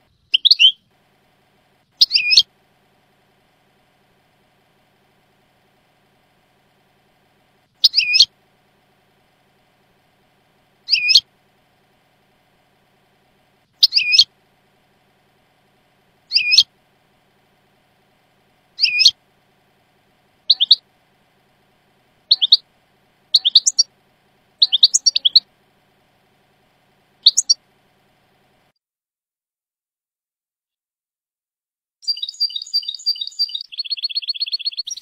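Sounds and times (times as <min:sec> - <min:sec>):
finch chirping song: 0:00.0 - 0:00.9, 0:02.0 - 0:02.5, 0:07.8 - 0:08.3, 0:10.8 - 0:11.3, 0:13.8 - 0:14.3, 0:16.2 - 0:16.7, 0:18.7 - 0:19.2, 0:20.4 - 0:20.9, 0:22.2 - 0:23.9, 0:24.6 - 0:25.5, 0:27.2 - 0:27.6, 0:32.0 - 0:35.0.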